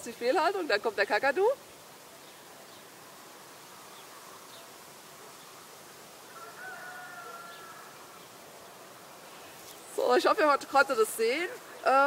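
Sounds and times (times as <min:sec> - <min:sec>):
drawn-out call: 0:06.3 - 0:08.2.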